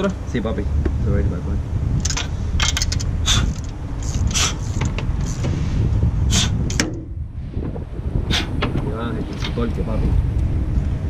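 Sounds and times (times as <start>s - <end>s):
steady low rumble: 0.0s - 11.0s
ratchet wrench clicking: 2.0s - 5.4s.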